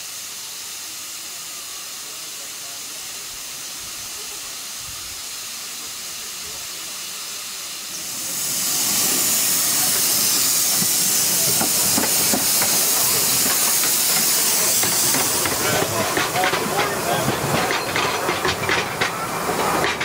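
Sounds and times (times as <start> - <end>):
steam locomotive hissing: 0.0 - 20.0
train wheels clicking on rails: 7.7 - 20.0.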